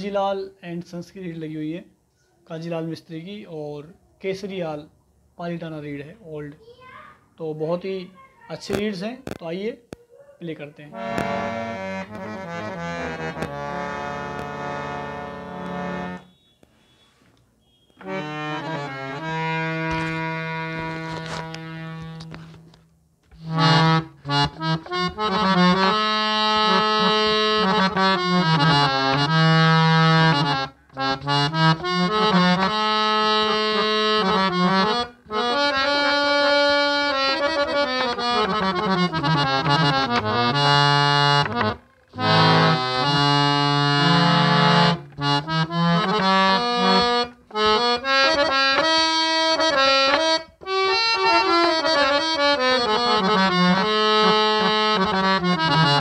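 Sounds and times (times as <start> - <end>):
harmonium melody over drone: 10.9 - 16.6, 17.7 - 22.8, 23.4 - 56.0.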